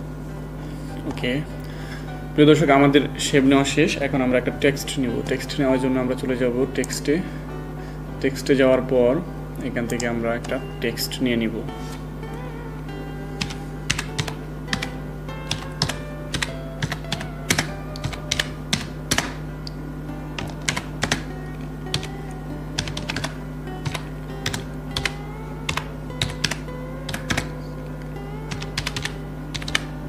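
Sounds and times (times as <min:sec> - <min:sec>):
soft background music: 0:00.0 - 0:30.0
keyboard typing clicks: 0:13.4 - 0:19.4, 0:20.4 - 0:21.3, 0:21.9 - 0:22.2, 0:22.8 - 0:27.6, 0:28.5 - 0:29.9.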